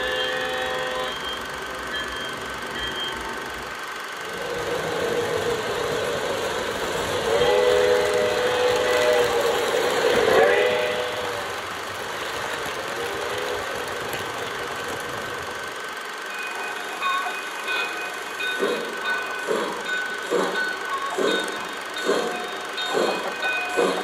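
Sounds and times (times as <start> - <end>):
model train whistle: 0.0 - 1.6, 7.2 - 11.6
model train running rumble: 0.0 - 24.0
steam locomotive chuffs: 0.0 - 24.0.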